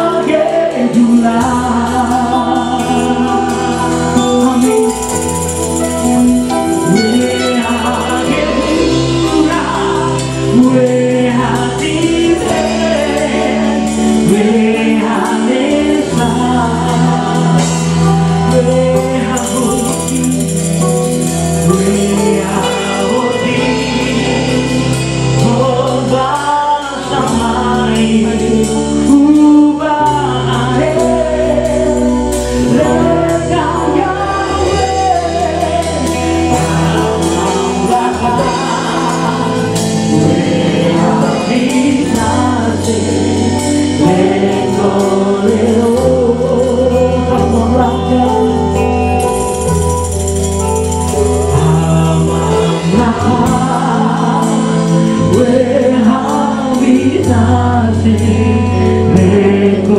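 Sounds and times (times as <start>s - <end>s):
electric guitar band: 0.0s - 59.9s
man singing lead: 0.0s - 59.9s
voices singing: 0.0s - 59.9s
tambourines shaken: 2.4s - 10.8s, 17.7s - 24.1s, 48.3s - 55.5s.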